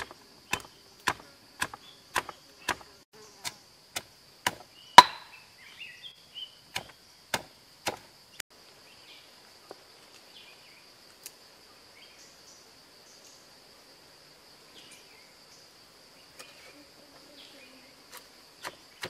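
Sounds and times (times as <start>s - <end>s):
stone pestle pounding in mortar: 5.0s - 5.2s.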